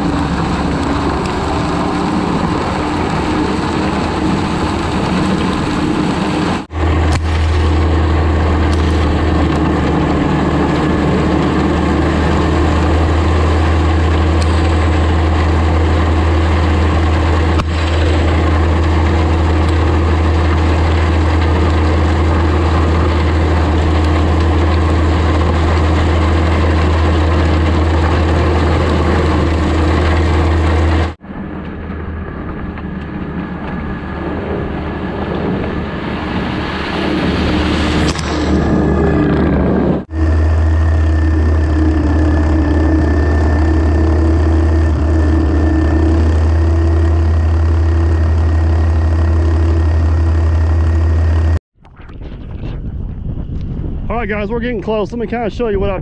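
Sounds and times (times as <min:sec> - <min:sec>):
blade scraping gravel: 0:00.0 - 0:31.2
skid steer engine droning: 0:00.0 - 0:54.5.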